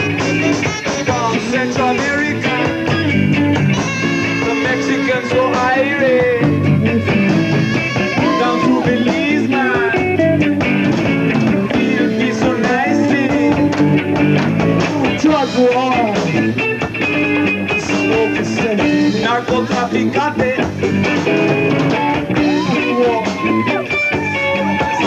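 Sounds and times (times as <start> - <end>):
saxophone: 0.0 - 14.2
bass: 0.0 - 25.0
drums: 0.0 - 25.0
electric guitar: 0.0 - 25.0.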